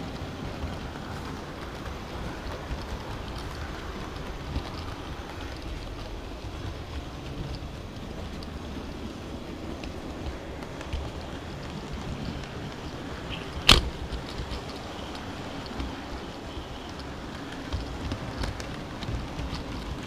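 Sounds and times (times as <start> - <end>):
model train wheels on rails: 0.0 - 20.0
sharp click: 13.6 - 13.9.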